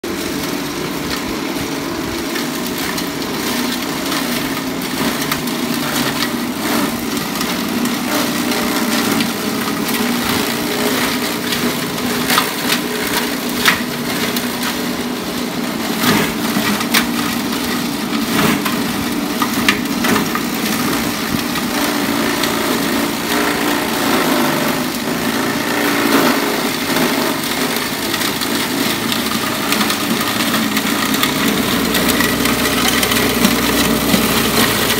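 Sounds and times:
grass chopper running: 0:00.0 - 0:34.9.

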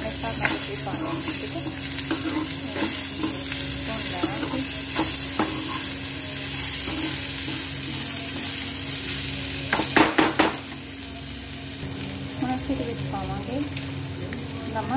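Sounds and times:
vegetables sizzling in oil: 0:00.0 - 0:14.9
steel spatula scraping pan: 0:00.4 - 0:08.2.

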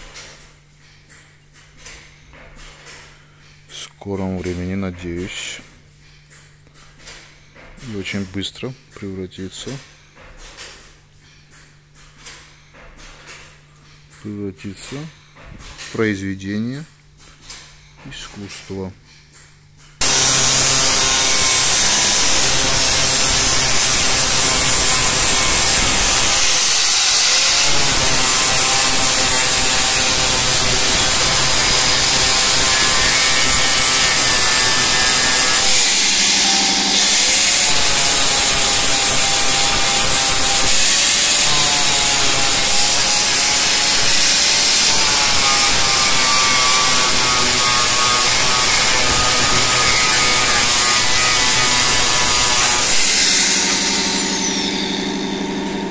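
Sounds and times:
angle grinder grinding steel: 0:20.0 - 0:55.9.

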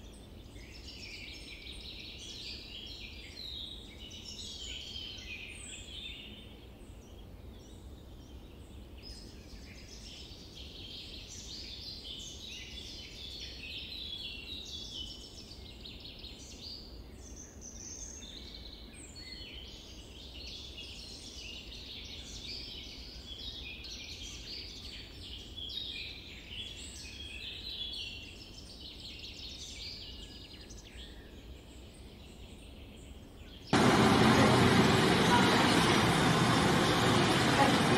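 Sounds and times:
birds chirping: 0:19.0 - 0:37.9
low steady rumble: 0:33.8 - 0:37.9.

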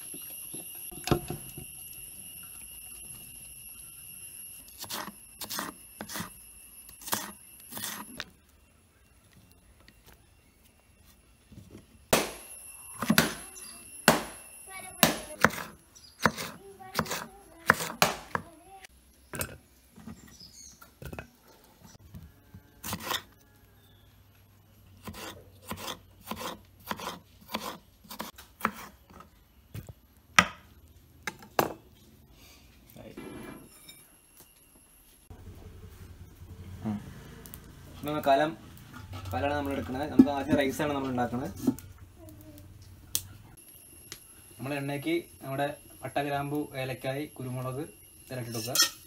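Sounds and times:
knife chopping on wooden board: 0:15.0 - 0:18.5.

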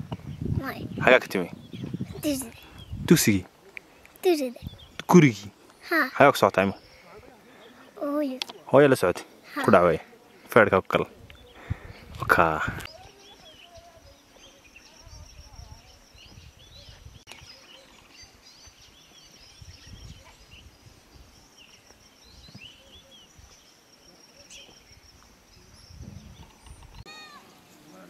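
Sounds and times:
wind rumble on microphone: 0:00.0 - 0:03.4, 0:04.6 - 0:05.0, 0:11.1 - 0:13.2, 0:15.0 - 0:17.6, 0:19.4 - 0:21.4, 0:25.0 - 0:27.0
birds chirping: 0:00.0 - 0:28.0.

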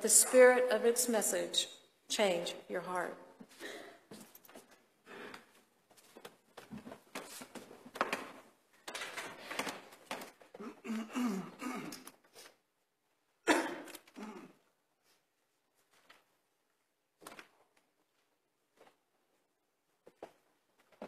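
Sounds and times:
rustling and shuffling: 0:03.4 - 0:10.6, 0:15.0 - 0:21.0
coughs and murmurs: 0:10.5 - 0:12.2, 0:13.4 - 0:14.7.

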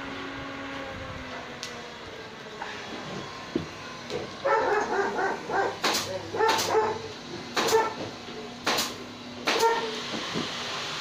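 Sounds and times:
dog yipping: 0:04.4 - 0:07.1, 0:07.7 - 0:08.0, 0:09.6 - 0:09.9
dog barking: 0:04.4 - 0:08.0, 0:09.6 - 0:09.9.

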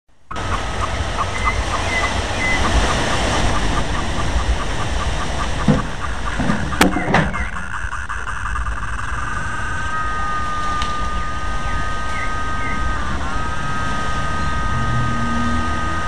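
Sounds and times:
faint pulsing tone: 0:00.2 - 0:16.0
wind gusting through foliage: 0:00.2 - 0:16.0
wind buffeting microphone: 0:00.3 - 0:16.0
sharp knocks: 0:05.4 - 0:07.7.

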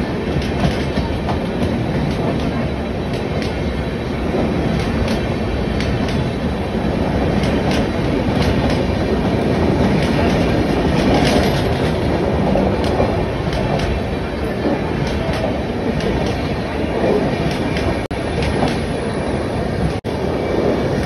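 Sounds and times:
train coaches rumbling: 0:00.0 - 0:21.0
wheels clicking on track: 0:04.3 - 0:18.9.

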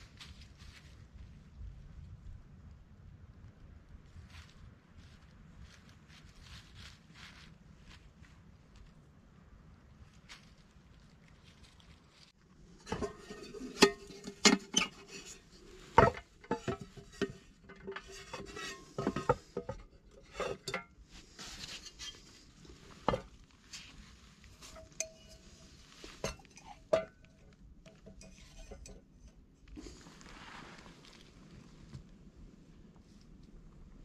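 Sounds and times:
metal cookware clinking: 0:12.8 - 0:20.9, 0:24.6 - 0:27.2, 0:27.9 - 0:29.0.

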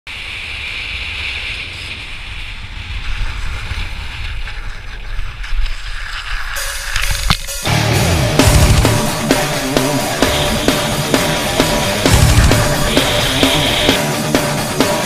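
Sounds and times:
wind rushing over microphone: 0:00.1 - 0:07.5
hiss: 0:00.1 - 0:07.6, 0:08.9 - 0:15.0
low rumble: 0:00.1 - 0:15.0.

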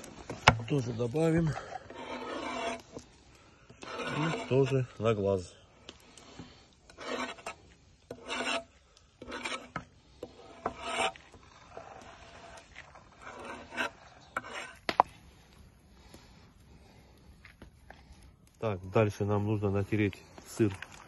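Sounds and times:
knife scraping a cutting board: 0:01.5 - 0:03.0, 0:03.7 - 0:04.8, 0:06.9 - 0:14.8.

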